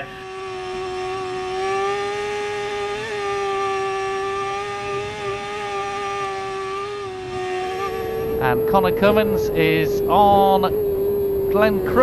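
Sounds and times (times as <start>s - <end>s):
motorcycle engine at high revs: 0.0s - 12.0s.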